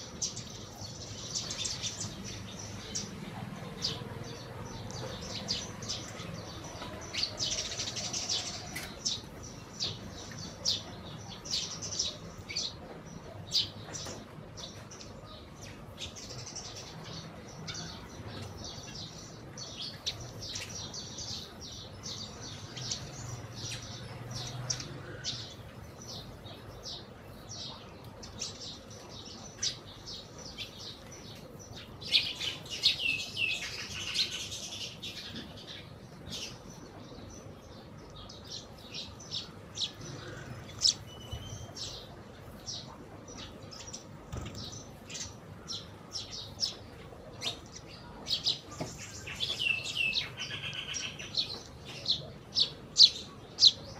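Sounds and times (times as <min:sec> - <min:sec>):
sparrows chirping: 0:00.0 - 0:53.9.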